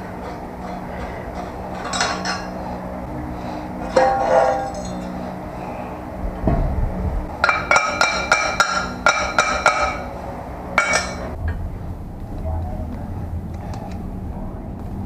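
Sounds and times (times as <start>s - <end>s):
ringing metallic clinks: 0.2s - 2.6s, 3.8s - 5.6s, 7.4s - 10.2s, 10.8s - 11.4s.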